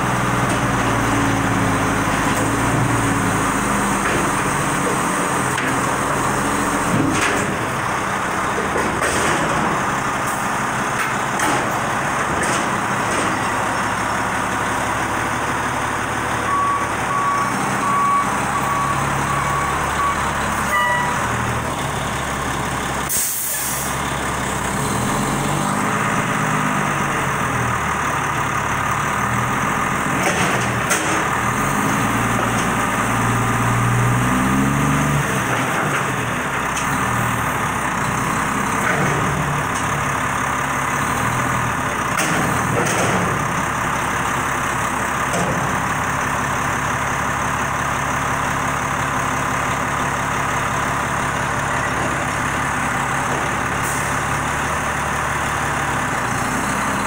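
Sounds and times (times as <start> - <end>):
garbage truck diesel engine revving: 0.0 - 57.0
short beeps: 16.5 - 21.2.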